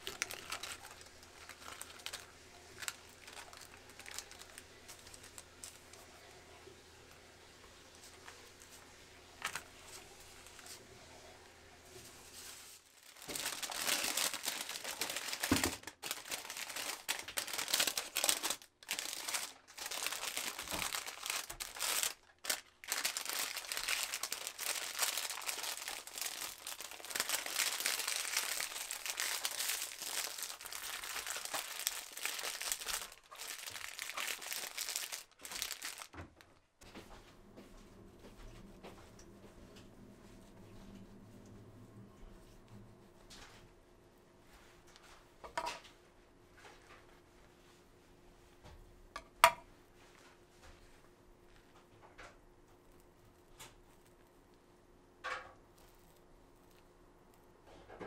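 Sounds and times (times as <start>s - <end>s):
parchment paper crinkling: 0.0s - 6.4s, 12.2s - 36.6s.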